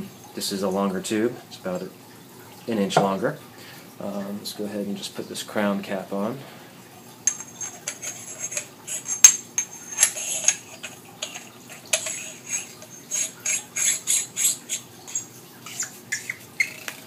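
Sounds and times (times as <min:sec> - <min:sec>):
metal cap screwing clicks: 0:07.3 - 0:14.8.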